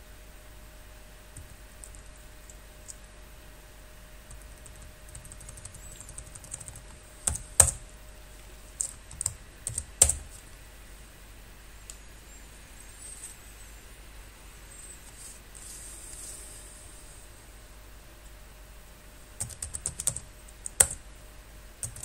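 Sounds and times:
typing on computer keyboard: 0:04.3 - 0:07.8, 0:08.8 - 0:10.3, 0:19.4 - 0:21.0.

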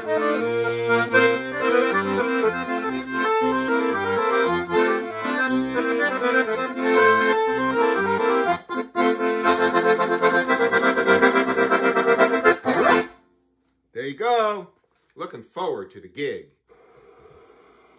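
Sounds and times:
piano accordion playing a tune: 0:00.0 - 0:13.2.

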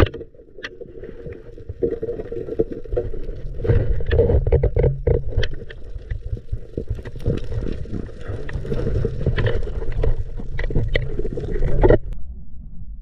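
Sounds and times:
water sloshing and splashing: 0:00.0 - 0:12.2
muffled low rumble: 0:12.0 - 0:13.0.

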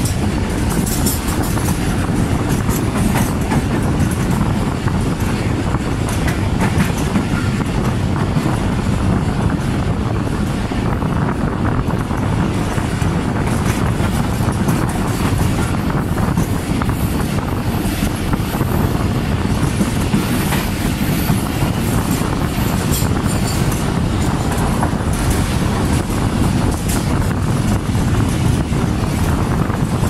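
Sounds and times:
wheels clicking over rail joints: 0:00.0 - 0:09.7, 0:11.9 - 0:30.0
train wheels rumbling on track: 0:00.0 - 0:30.0.

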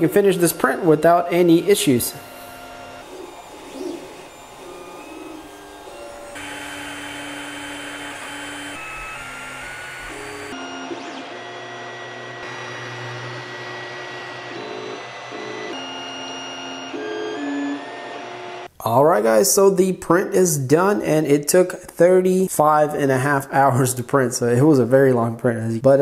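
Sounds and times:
stepper motors singing tones: 0:00.0 - 0:11.5
fans whirring: 0:00.0 - 0:18.7.

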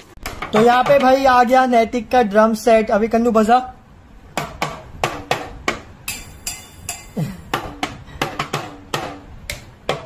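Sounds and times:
plastic toy drums struck: 0:04.4 - 0:10.0.

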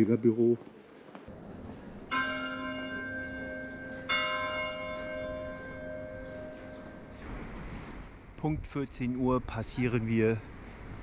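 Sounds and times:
church clock bell striking: 0:02.1 - 0:07.2.

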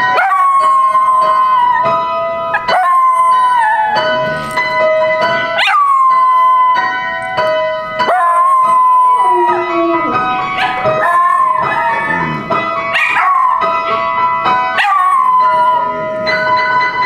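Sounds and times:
small dog howling: 0:00.1 - 0:01.9, 0:02.6 - 0:04.6, 0:05.6 - 0:06.9, 0:08.0 - 0:13.7, 0:14.8 - 0:16.0
music with held notes: 0:00.8 - 0:17.0.

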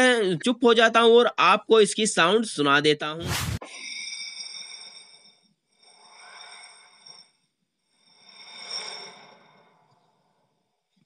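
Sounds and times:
rushing whoosh: 0:03.2 - 0:03.7.

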